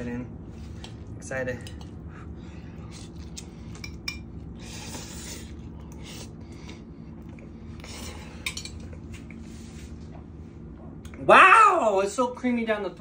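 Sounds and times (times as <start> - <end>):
steady low hum: 0.0 - 13.0
noodles being slurped: 4.5 - 6.5.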